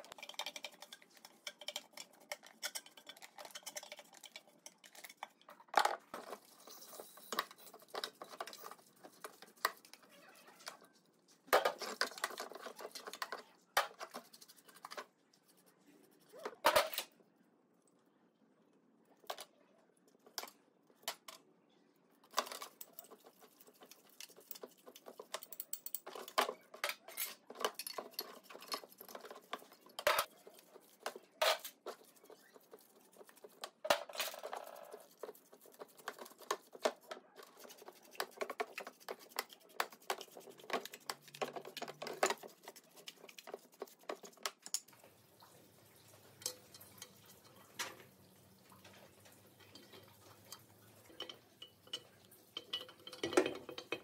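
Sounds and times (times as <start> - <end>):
metal parts and tools clinking: 24.2 - 30.3, 48.8 - 54.0.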